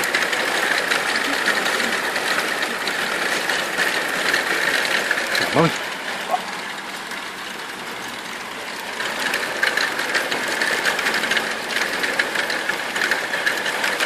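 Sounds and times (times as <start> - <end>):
hail clicking: 0.0 - 14.0
heavy rain hiss: 0.0 - 14.0.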